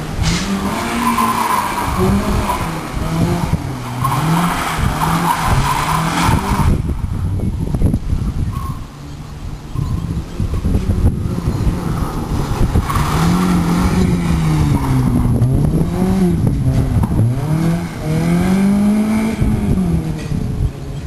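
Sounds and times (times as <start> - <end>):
tyres skidding on loose surface: 0.0 - 6.9, 10.6 - 20.4
rally car engine revving: 0.0 - 9.0, 9.6 - 20.9.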